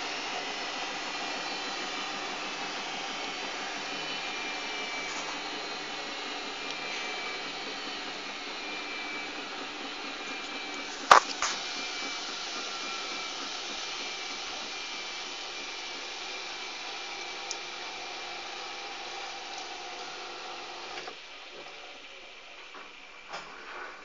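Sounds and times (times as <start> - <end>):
washing machine motor running: 0.0 - 23.8.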